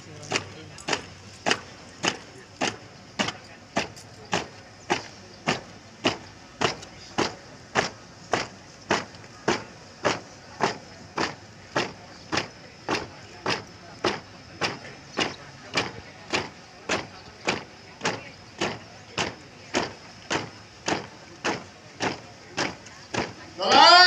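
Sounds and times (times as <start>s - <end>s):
marching footsteps on asphalt: 0.0s - 24.0s.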